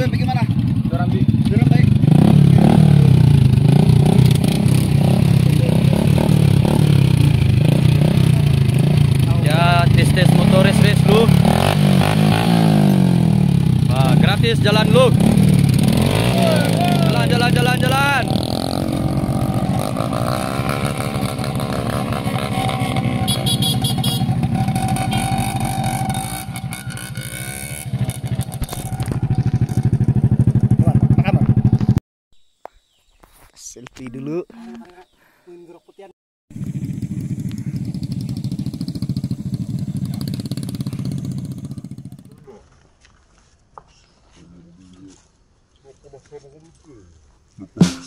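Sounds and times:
motorcycle engine idling: 0.0s - 11.3s, 23.0s - 32.0s, 36.5s - 42.5s.

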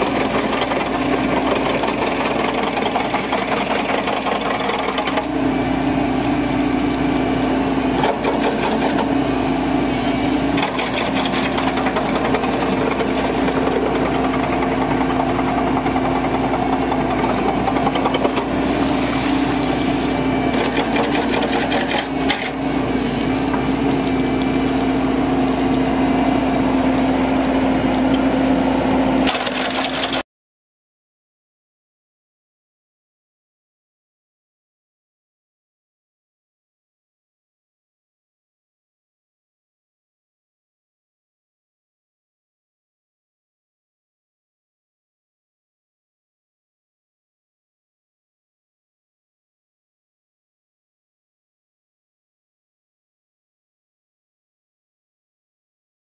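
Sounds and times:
excavator running: 0.0s - 30.2s
mechanical rattle: 29.2s - 30.2s.

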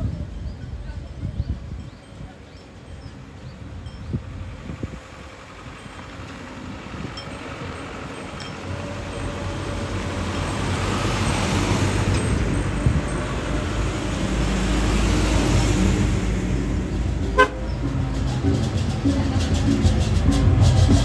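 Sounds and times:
trucks driving past: 2.6s - 21.0s
truck horn toot: 17.2s - 18.0s.

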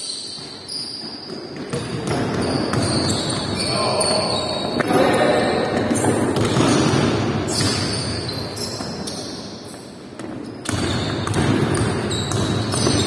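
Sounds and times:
basketball dribbling on wooden floor: 1.3s - 3.6s, 5.8s - 8.1s, 10.2s - 13.0s.

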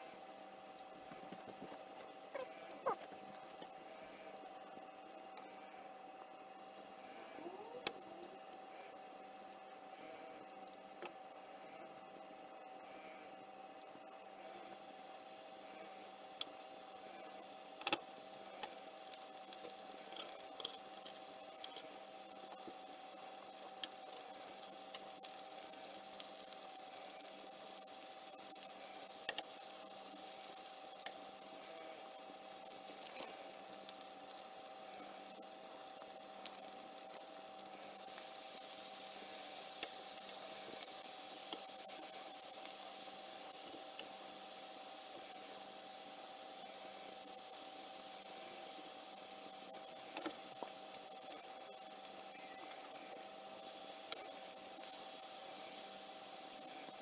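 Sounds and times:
meat sizzling in a frying pan: 14.0s - 57.0s.

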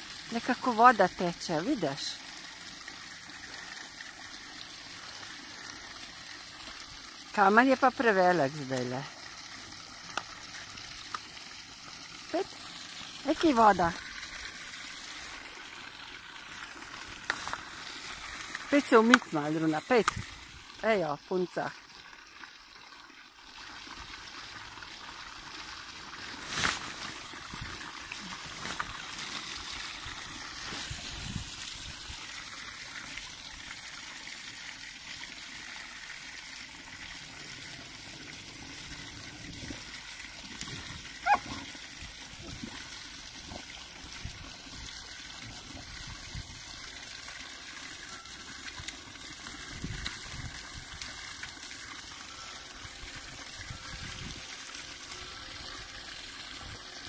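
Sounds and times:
water trickling onto stones: 0.0s - 57.0s
dog drinking: 40.5s - 41.8s.

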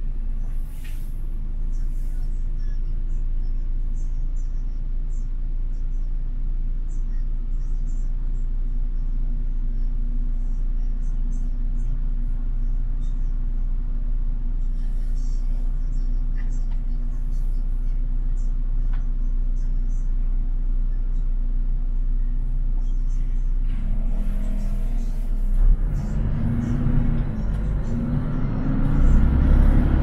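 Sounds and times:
bus engine and road rumble: 0.0s - 30.0s
steady hum: 9.2s - 30.0s.

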